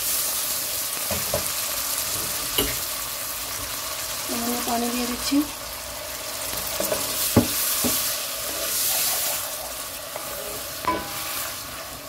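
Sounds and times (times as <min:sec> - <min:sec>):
masala sizzling in hot oil: 0:00.0 - 0:12.0.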